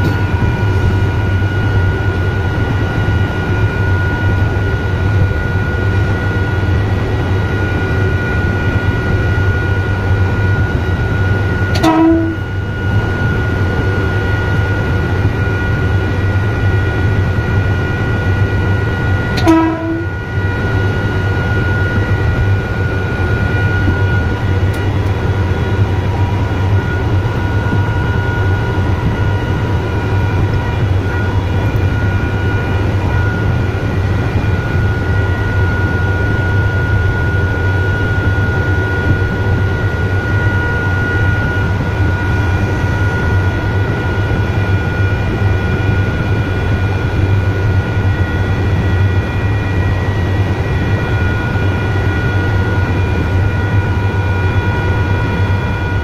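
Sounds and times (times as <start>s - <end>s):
train running with whine: 0.0s - 56.0s
train horn toots: 11.7s - 12.8s, 19.4s - 20.4s.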